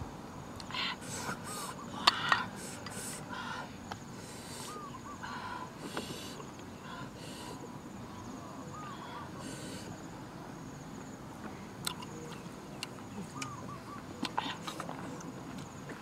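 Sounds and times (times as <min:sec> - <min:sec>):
high insect buzz: 0:00.6 - 0:07.6.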